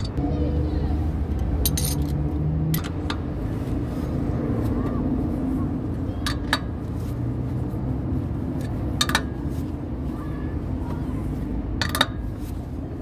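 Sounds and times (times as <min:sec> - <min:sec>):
socket clinking on lug nuts: 0:01.6 - 0:03.2, 0:11.8 - 0:12.2.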